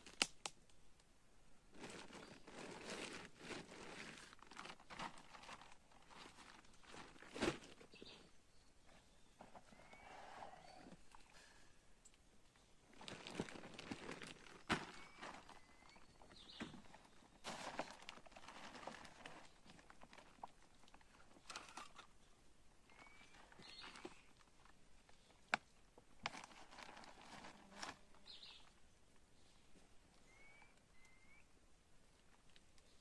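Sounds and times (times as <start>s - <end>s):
plastic tarp rustling: 1.7s - 8.2s, 12.9s - 20.5s, 26.2s - 28.1s
bird chirps: 14.9s - 17.3s, 22.9s - 24.3s, 28.2s - 28.7s, 30.2s - 31.5s.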